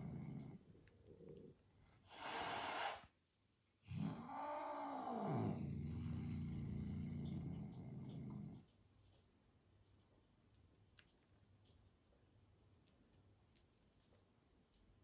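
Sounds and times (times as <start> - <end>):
cat hissing: 2.0 - 3.1
cat growling: 3.8 - 8.7.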